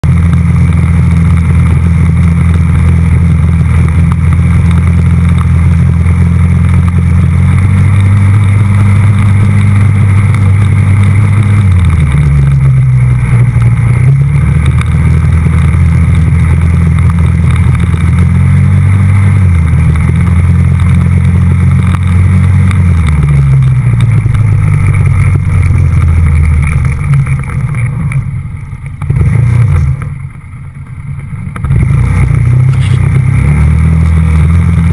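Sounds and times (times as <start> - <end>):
quad bike engine revving: 0.0 - 28.4, 29.0 - 30.2, 31.5 - 34.9.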